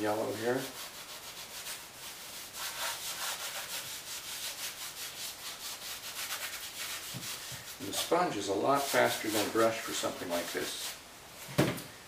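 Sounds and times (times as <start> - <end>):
sponge scrubbing on canvas: 0.0 - 11.0.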